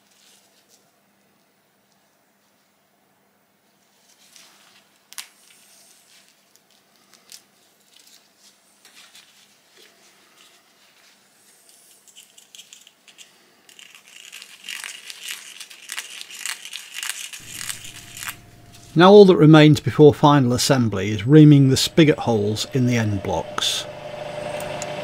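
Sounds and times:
gloves rustling: 0:03.9 - 0:19.3.

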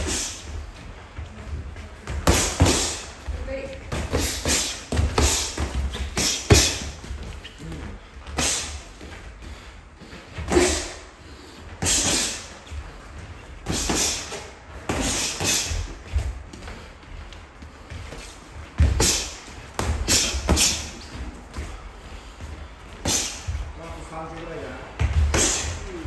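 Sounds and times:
boxers sharp exhales: 0:00.0 - 0:00.5, 0:02.3 - 0:03.2, 0:03.9 - 0:07.0, 0:07.8 - 0:08.9, 0:09.5 - 0:12.7, 0:13.6 - 0:16.0, 0:18.0 - 0:21.0, 0:21.6 - 0:23.7, 0:25.2 - 0:25.9.

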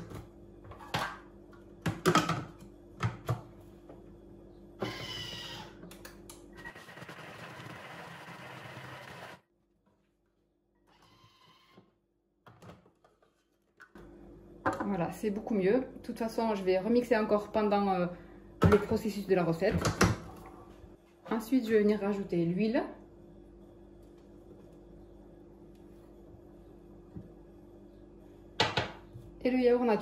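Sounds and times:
food processor motor chopping: 0:06.6 - 0:09.4.

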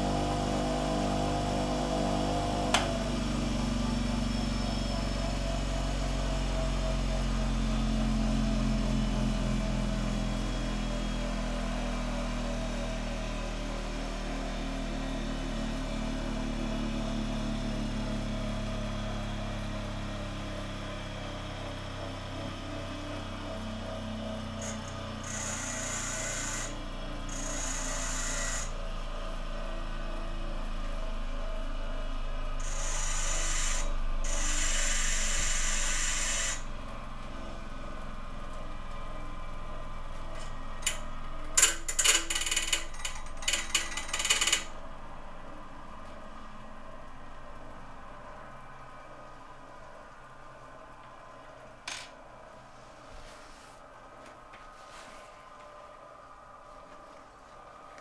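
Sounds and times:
bench grinder motor running: 0:23.4 - 0:28.8, 0:32.5 - 0:36.7, 0:41.6 - 0:44.8.

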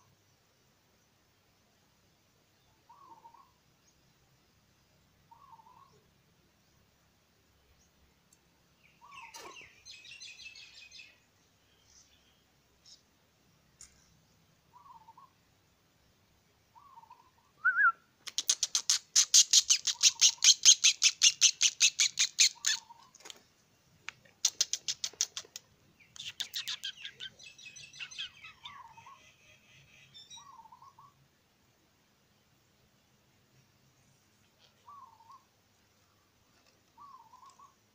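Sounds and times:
soft wavering bird calls: 0:02.6 - 0:03.6, 0:05.2 - 0:06.1, 0:08.8 - 0:13.1, 0:14.7 - 0:15.4, 0:16.7 - 0:23.2, 0:24.4 - 0:31.2, 0:34.4 - 0:37.9.

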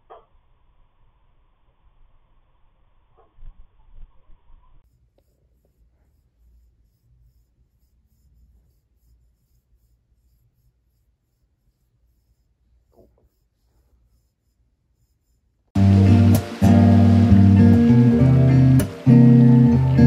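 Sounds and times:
wire massager scratching fur: 0:04.8 - 0:15.8.

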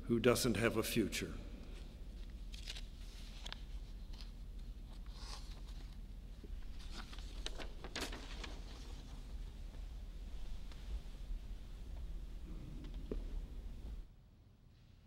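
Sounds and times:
papers rustling: 0:02.2 - 0:06.0, 0:06.6 - 0:09.4.

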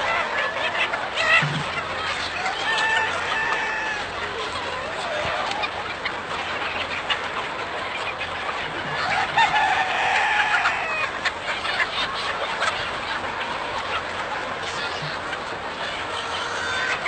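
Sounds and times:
chickens clucking: 0:00.0 - 0:17.0
rooster crowing: 0:02.4 - 0:04.1, 0:09.0 - 0:11.1.

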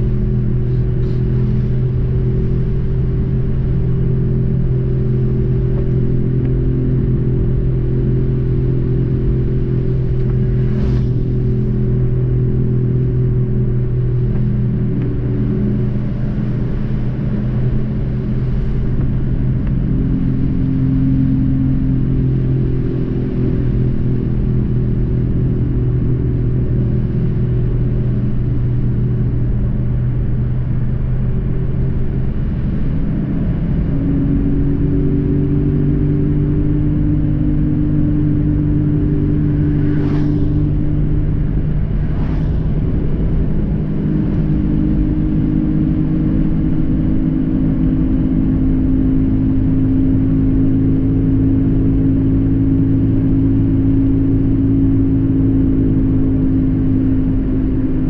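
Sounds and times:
car engine and road noise: 0:00.0 - 0:58.0
windscreen wiper swish: 0:09.3 - 0:21.3, 0:39.0 - 0:46.8.

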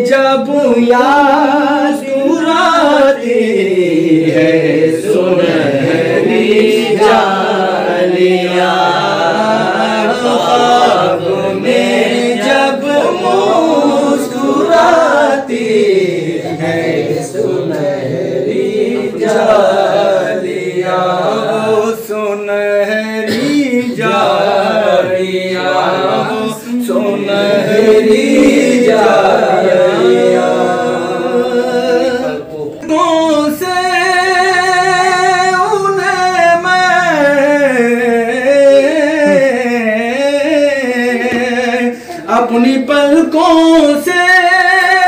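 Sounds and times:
men singing unaccompanied: 0:00.0 - 0:45.0.

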